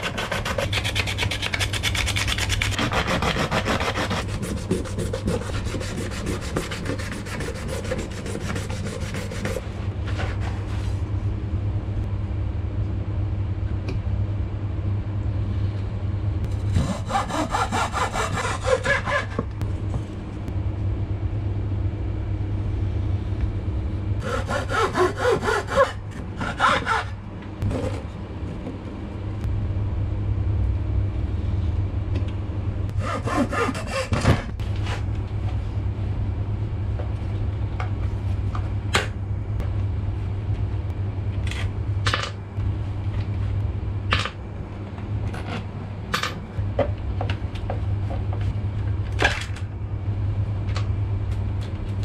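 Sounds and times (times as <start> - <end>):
hacksaw cutting wood: 0.0 - 9.6, 16.6 - 19.4, 24.2 - 27.1, 33.0 - 34.5
steady low hum: 0.0 - 52.0.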